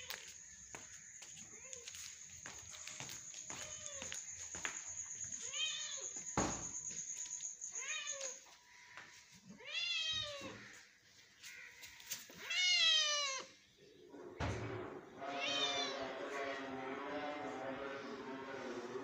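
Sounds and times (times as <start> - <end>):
cat meowing: 9.6 - 10.6, 12.4 - 13.6, 15.2 - 16.1.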